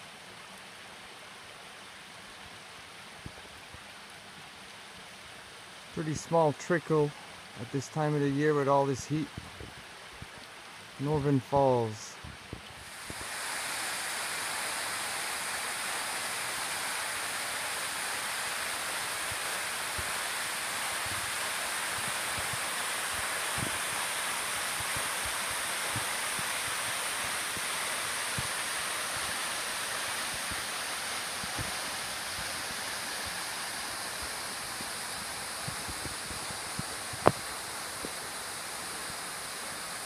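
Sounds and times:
waterfall pouring into pool: 12.2 - 40.0.

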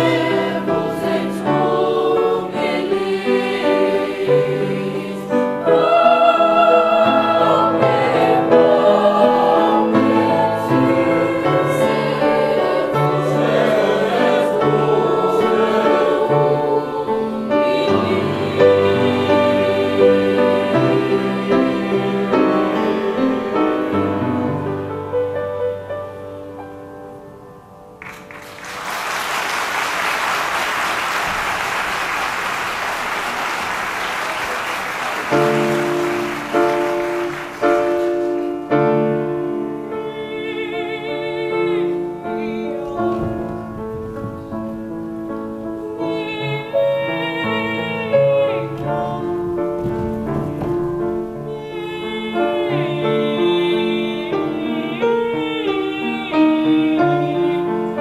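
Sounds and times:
young voices singing: 0.0 - 24.7, 31.1 - 44.8, 45.8 - 58.0
grand piano playing: 0.0 - 58.0
audience applause: 28.0 - 38.6.

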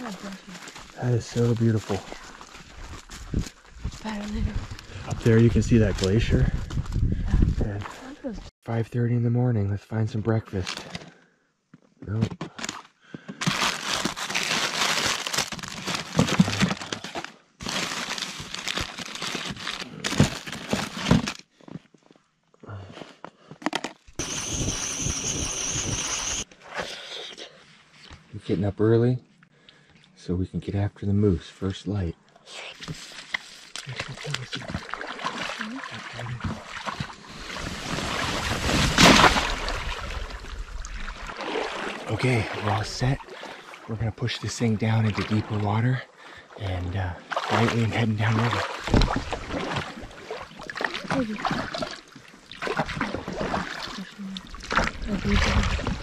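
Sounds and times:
plastic wrappers crinkling: 13.4 - 21.4
water sloshing and splashing: 32.8 - 43.9, 47.2 - 56.0.

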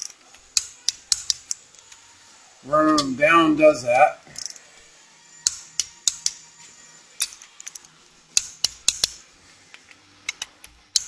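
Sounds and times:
torque wrench clicks: 0.0 - 1.6, 4.4 - 4.6, 5.4 - 6.4, 7.2 - 9.2.

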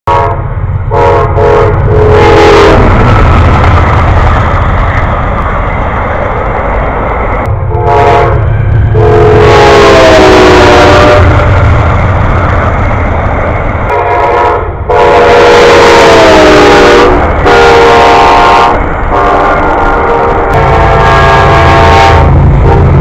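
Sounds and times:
train air horn blasts: 0.1 - 3.0, 7.7 - 11.5, 13.9 - 23.0
train cars rolling by: 0.1 - 23.0.

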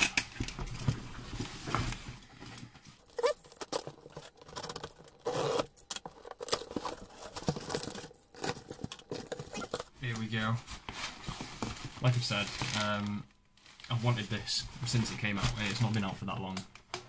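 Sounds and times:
tape tearing: 3.1 - 9.9
scratching at packing tape: 5.2 - 5.8.

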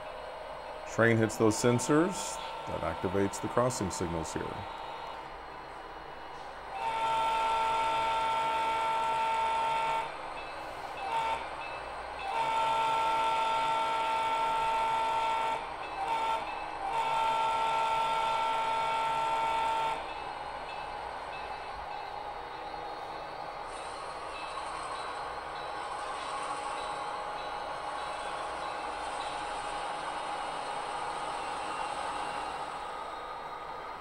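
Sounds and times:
model train horn blasts: 6.7 - 10.1, 11.0 - 11.5, 12.2 - 20.0.

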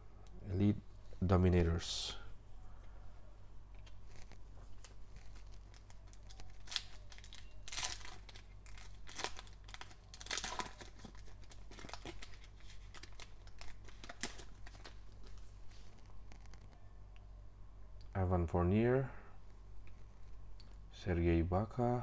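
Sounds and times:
foil wrapper crinkling and tearing: 3.9 - 15.5.

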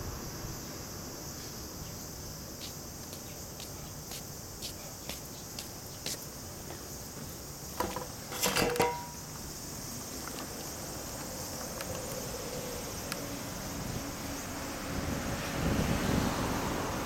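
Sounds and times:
insects droning: 0.0 - 17.0
knocks and clatter: 7.8 - 9.2.

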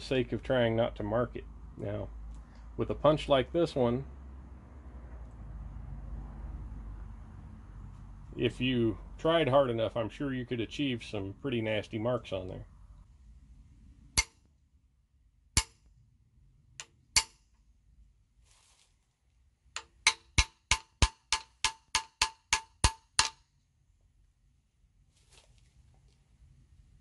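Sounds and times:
hammer tapping steel punch: 14.1 - 14.5, 15.5 - 15.9, 16.8 - 17.5, 19.8 - 23.4.

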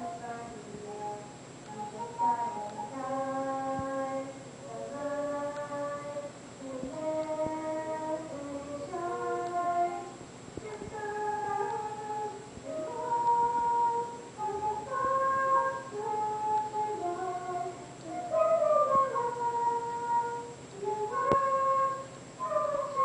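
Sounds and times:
girl singing slow melody: 0.0 - 23.0
flute playing: 18.0 - 23.0.

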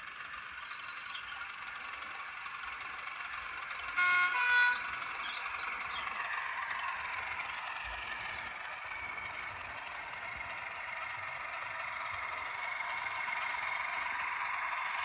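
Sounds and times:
birds chirping: 0.0 - 15.0
diesel engine sound from speaker: 0.0 - 15.0
two-tone model train horn: 3.7 - 7.5.

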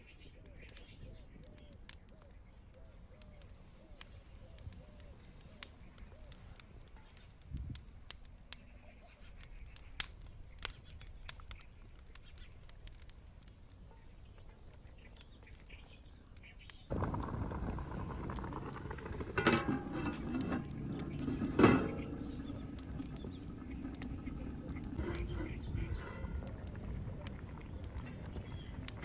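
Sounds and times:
wood fire crackling: 0.0 - 29.0
water boiling in pot: 3.2 - 14.0, 16.5 - 29.0
low rumble: 16.9 - 29.0.

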